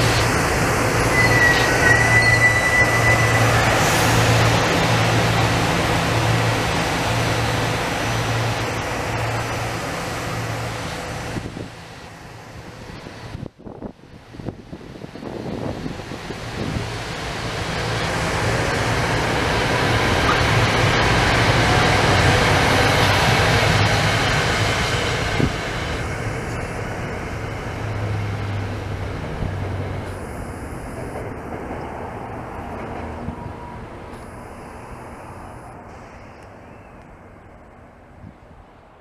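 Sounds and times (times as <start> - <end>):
train passing: 0.0 - 39.0
wheels rumbling on rail: 0.0 - 39.0.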